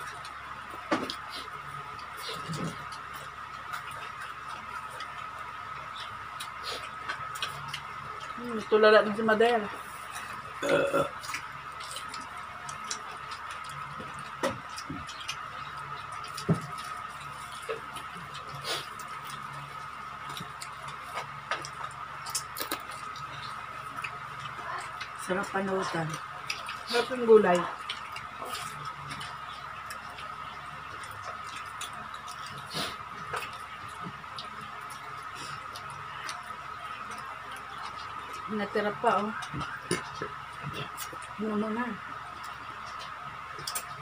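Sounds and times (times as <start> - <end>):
eating clicks and mouth noises: 0.0 - 44.0
steady faint hum: 0.0 - 44.0.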